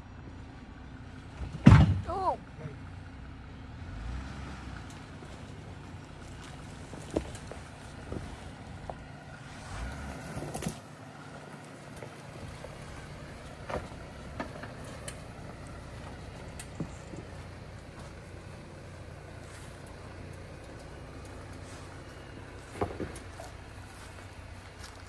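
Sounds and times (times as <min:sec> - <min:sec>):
vehicle engine humming: 0:00.0 - 0:25.0
knocks and clicks from vehicle: 0:01.3 - 0:02.1, 0:11.8 - 0:18.6, 0:19.4 - 0:24.4.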